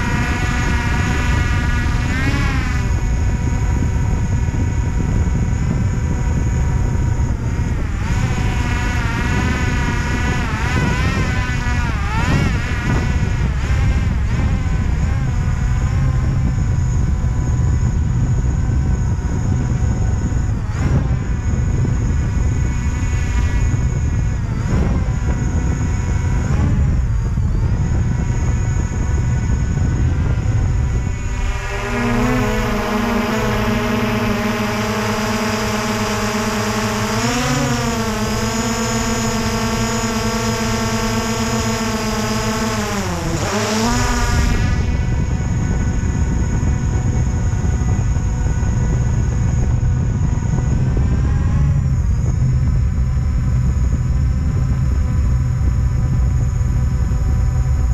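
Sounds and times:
drone propellers whining: 0.0 - 57.9
heavy low rumble: 11.9 - 35.0, 44.0 - 57.9.

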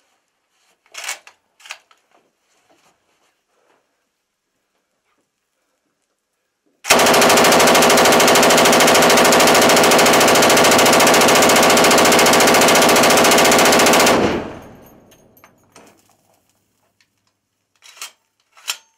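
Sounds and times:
machine gun burst: 6.9 - 15.1.

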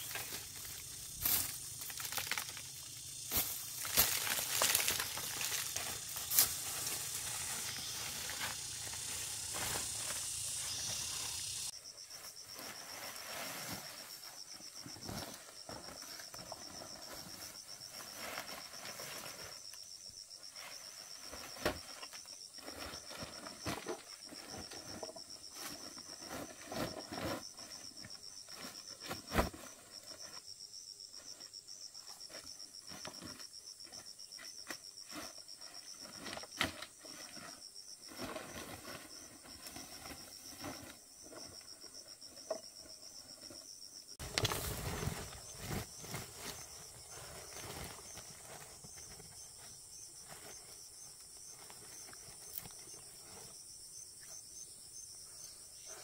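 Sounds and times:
broad rustling hiss: 0.0 - 14.5, 44.2 - 48.6
insects chirping in a high trill: 0.0 - 56.0.

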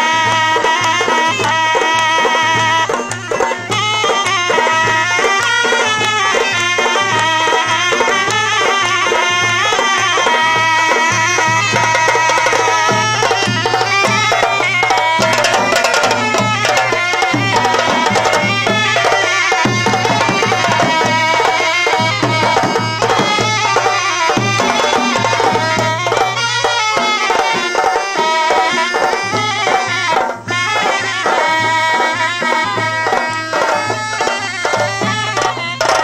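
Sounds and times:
reedy wind instrument melody: 0.0 - 36.0
steady drum beat: 0.0 - 36.0.

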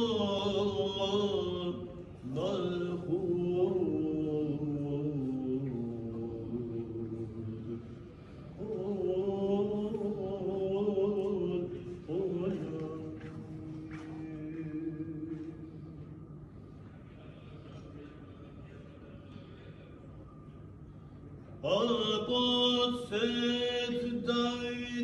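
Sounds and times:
man chanting a prayer: 0.0 - 8.0, 21.6 - 25.0.

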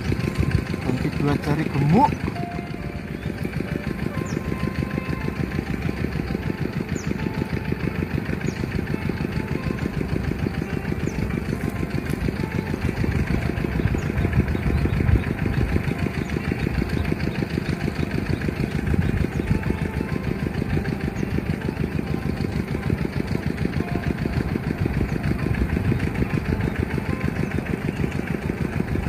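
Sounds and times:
wind buffeting microphone: 0.0 - 27.6.

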